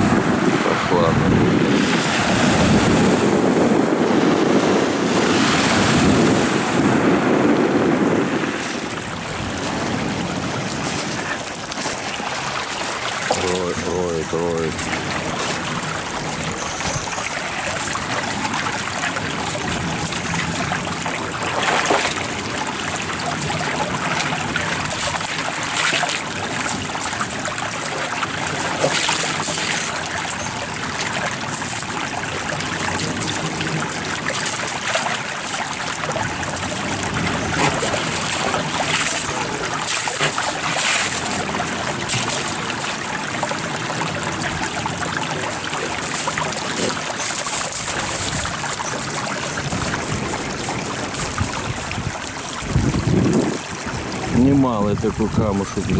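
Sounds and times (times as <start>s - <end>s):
water trickling over pebbles: 8.6s - 55.9s
dog pawing wet stones: 33.0s - 53.6s.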